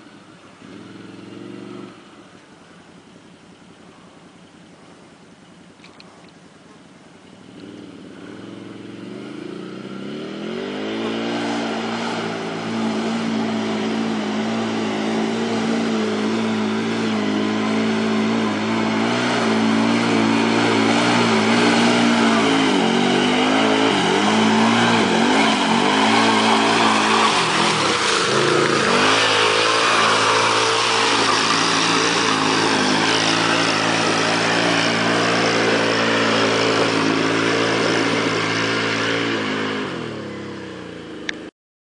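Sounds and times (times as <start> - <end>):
atv engine revving: 0.0 - 2.4, 7.4 - 41.5
mud and water splashing: 8.5 - 40.6.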